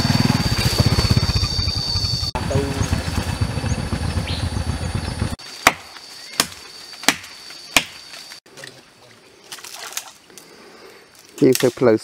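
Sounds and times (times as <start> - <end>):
motorcycle engine running: 0.0 - 5.4
machete chopping wood: 5.6 - 8.2.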